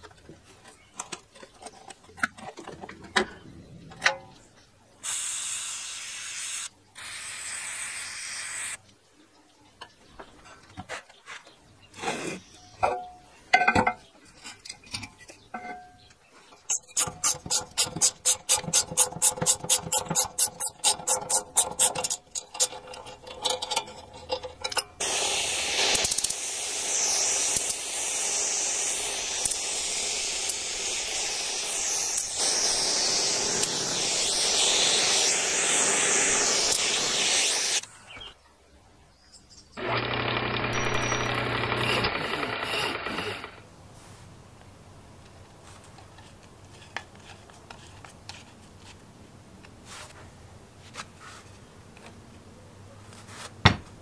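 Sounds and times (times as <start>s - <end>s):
compressed air hiss: 5.0s - 8.8s, 25.0s - 37.8s
rapid ratchet clicking: 16.7s - 22.8s, 25.0s - 37.8s, 40.1s - 43.4s.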